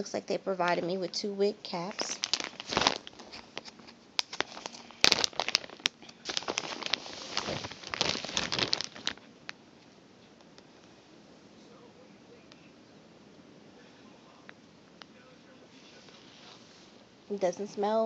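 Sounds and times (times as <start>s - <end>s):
plastic bag crinkling: 1.4s - 9.3s.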